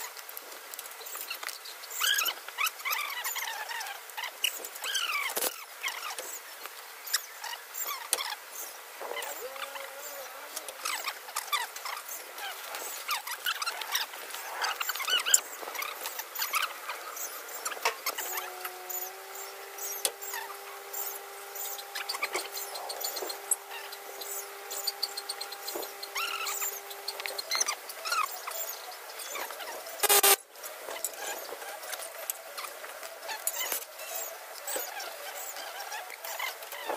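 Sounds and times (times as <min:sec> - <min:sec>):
small birds chirping: 0:00.0 - 0:36.9
steady humming tone: 0:14.1 - 0:36.9.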